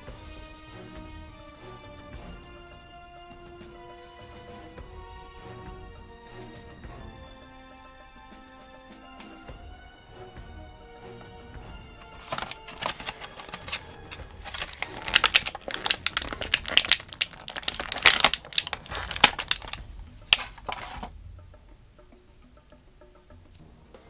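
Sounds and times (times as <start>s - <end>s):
plastic blister crinkling: 12.0s - 21.1s.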